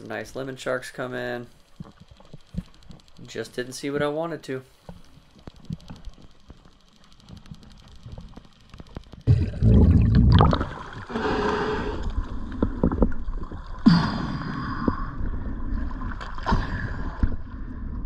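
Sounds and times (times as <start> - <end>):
faint clicks: 1.6 - 9.3
water sloshing and splashing: 9.2 - 18.0.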